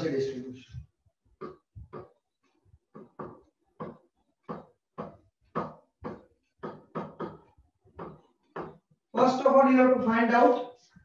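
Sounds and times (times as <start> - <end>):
stylus tapping and scraping: 0.8 - 9.0.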